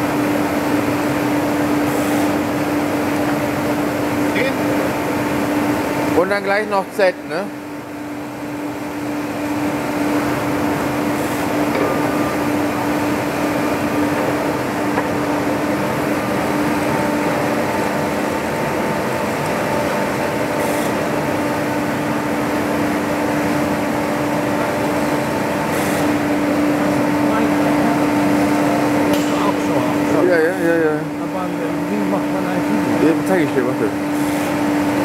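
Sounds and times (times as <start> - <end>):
boring mill humming: 0.0 - 35.0.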